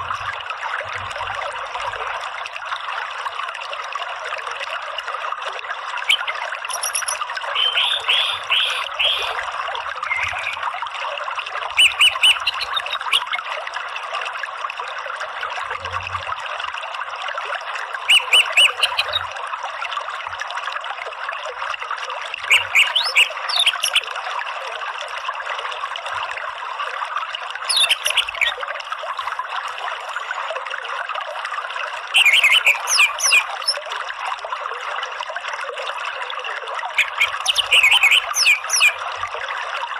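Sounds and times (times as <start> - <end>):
bird chirping: 6.1 - 9.4, 10.0 - 10.6, 11.8 - 13.3, 18.1 - 19.2, 22.5 - 24.0, 27.7 - 28.6, 32.2 - 33.8, 37.0 - 39.0.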